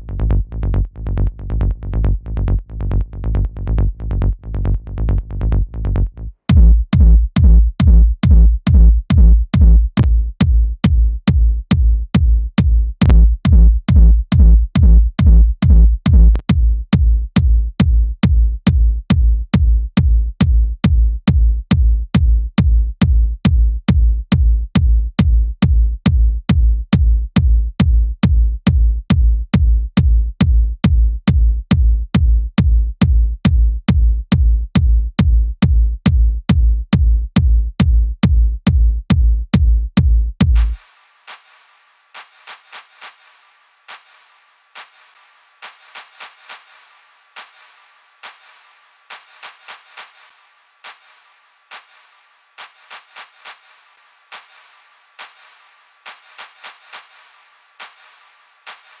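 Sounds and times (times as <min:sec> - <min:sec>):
electronic drum loop: 0:06.5 - 0:59.0.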